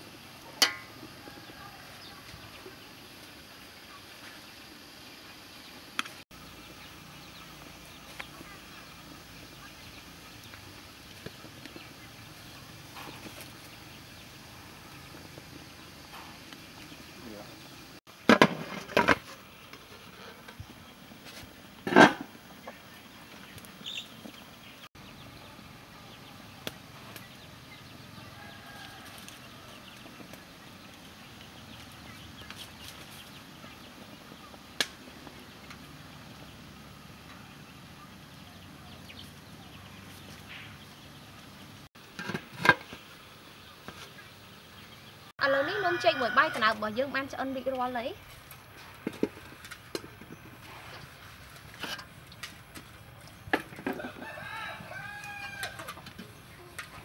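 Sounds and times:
metal spoon tapping in a pan: 0.6 - 0.9.

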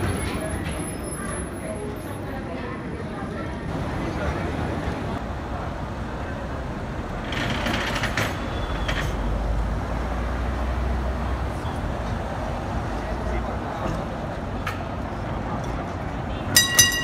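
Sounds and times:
tram rumbling on rails: 0.0 - 17.0
metallic ringing and clatter: 16.5 - 17.0.

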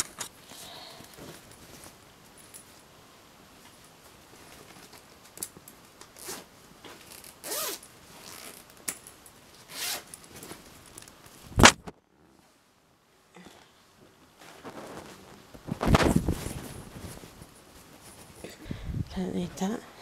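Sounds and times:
handling rustle: 0.0 - 2.9, 3.6 - 11.9, 14.0 - 18.8
zip rasping: 7.1 - 8.6, 9.7 - 10.2.

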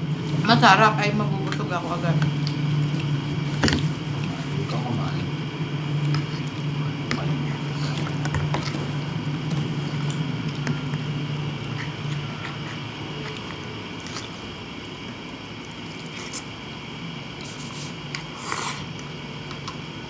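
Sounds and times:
steady low hum: 0.0 - 20.0
chewing: 7.6 - 16.5.

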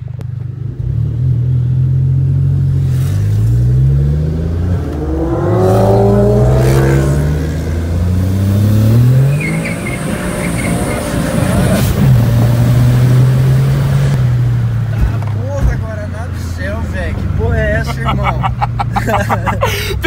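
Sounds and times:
car engine accelerating hard: 0.6 - 15.5.

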